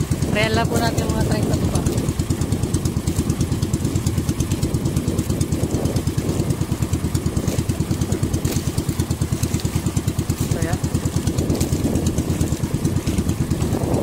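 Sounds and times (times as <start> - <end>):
small boat engine puttering: 0.0 - 14.0.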